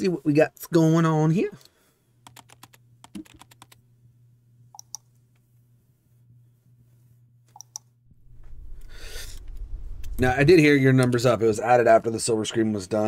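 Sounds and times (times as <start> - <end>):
faint low hum: 1.6 - 13.0
computer keyboard typing: 2.2 - 3.8.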